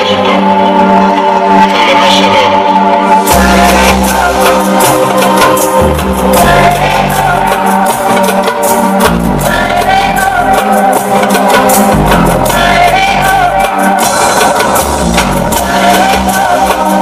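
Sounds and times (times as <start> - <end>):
loud dance music: 0.0 - 17.0
person singing: 0.0 - 17.0
steady percussion: 3.1 - 17.0
deep bass line: 3.3 - 8.0, 8.9 - 10.8, 11.6 - 17.0.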